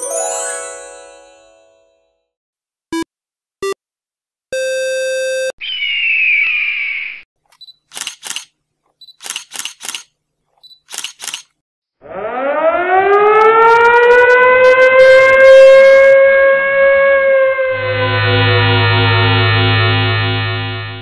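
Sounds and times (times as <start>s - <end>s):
short clicks: 7.4s - 11.6s
siren winding up: 12.0s - 21.0s.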